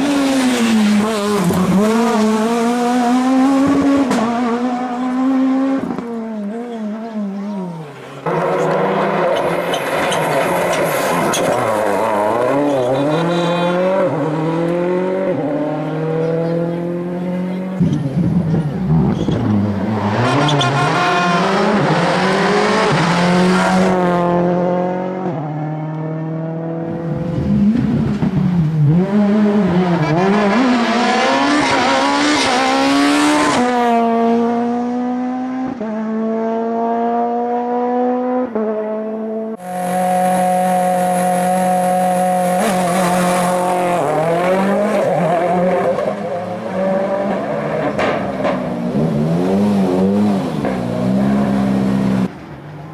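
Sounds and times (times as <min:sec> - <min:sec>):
rally car engines revving: 0:00.0 - 0:52.9.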